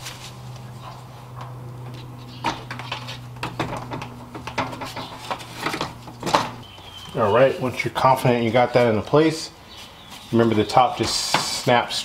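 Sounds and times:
steady low hum: 0.0s - 11.8s
fan knocking and clicking on radiator: 0.9s - 6.8s.

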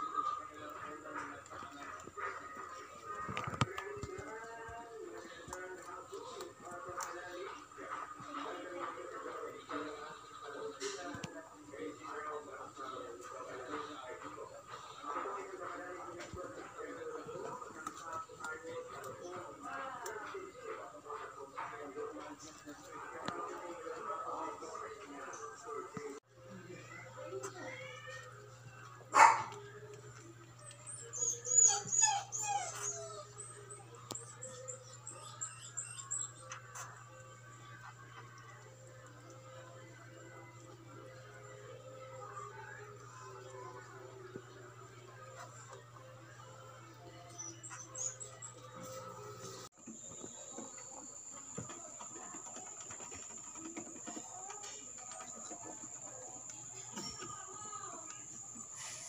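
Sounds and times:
rabbit crunching pellets: 0.0s - 25.9s, 48.8s - 59.0s
dog whimpering: 30.7s - 36.2s, 47.3s - 49.1s.

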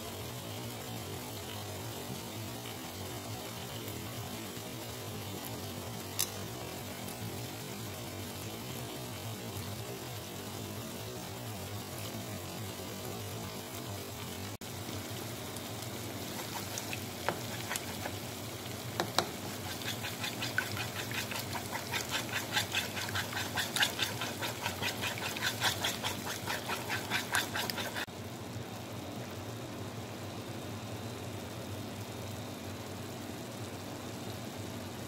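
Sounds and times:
spatula scraping frying pan: 16.2s - 28.1s
spatula tapping pan: 16.3s - 18.2s, 19.0s - 28.1s.

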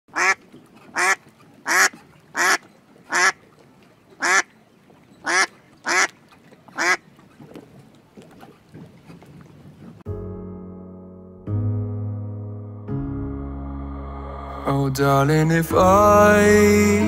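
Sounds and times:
duck quacking: 0.1s - 3.4s, 4.2s - 4.5s, 5.2s - 6.1s, 6.8s - 7.0s.

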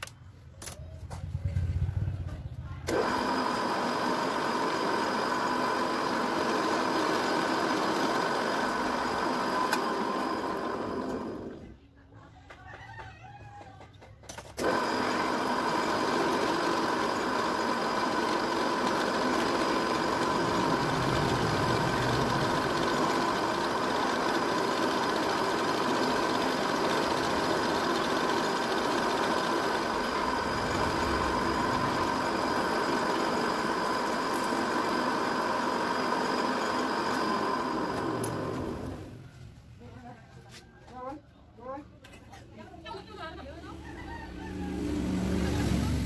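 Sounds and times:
drill press motor whining: 2.9s - 11.7s, 14.6s - 39.2s
drill bit cutting block: 14.6s - 38.9s.

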